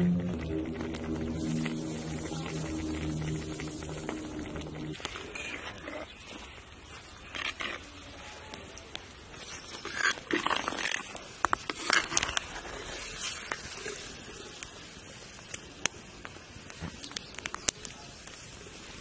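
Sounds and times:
steady hiss: 0.0s - 5.3s, 11.2s - 19.0s.

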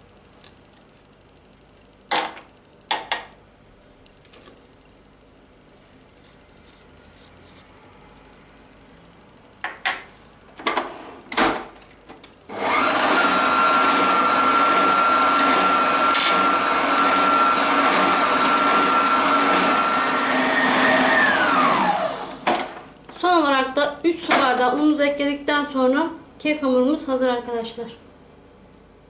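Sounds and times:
stand mixer motor whining: 12.5s - 22.5s.

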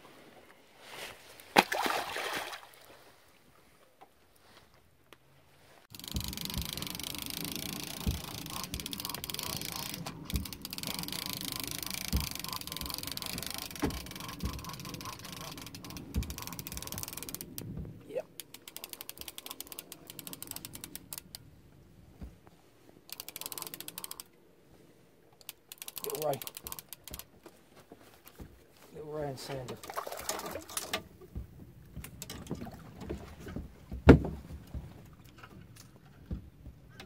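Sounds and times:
fishing reel ratchet clicking: 5.9s - 17.6s, 18.4s - 21.4s, 23.1s - 24.3s, 25.4s - 27.3s
dull knocks: 33.0s - 35.0s.

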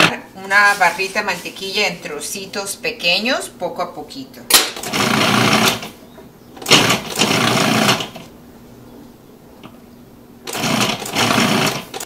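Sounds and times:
food processor pulsing: 4.6s - 5.9s, 6.6s - 8.3s, 10.4s - 12.0s.

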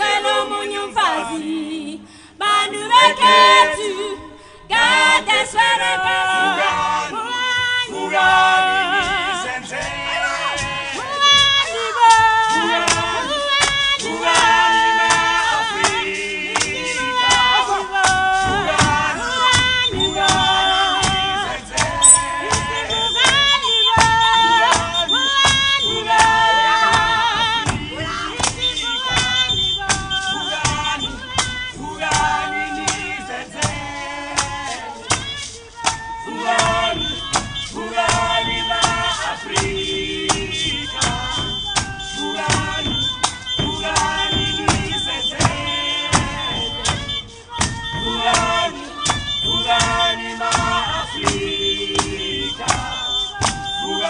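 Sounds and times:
group singing in harmony: 0.0s - 54.0s
sharp even beat: 18.1s - 35.4s, 36.4s - 54.0s.

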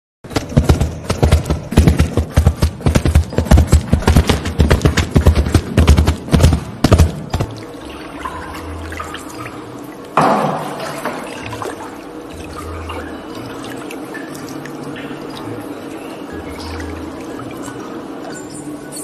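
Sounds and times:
galloping hoofbeats on gravel: 0.3s - 7.6s
water splashing and dripping: 6.6s - 18.6s.

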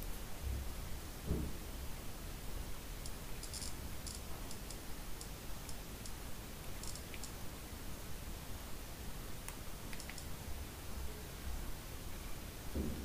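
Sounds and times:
steady background hiss: 0.0s - 13.0s
phone keys clicking: 9.9s - 10.3s.

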